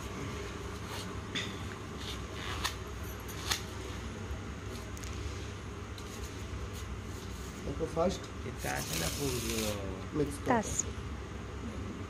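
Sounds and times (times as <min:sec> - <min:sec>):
playing cards shuffling: 0:02.0 - 0:03.9, 0:08.7 - 0:09.8.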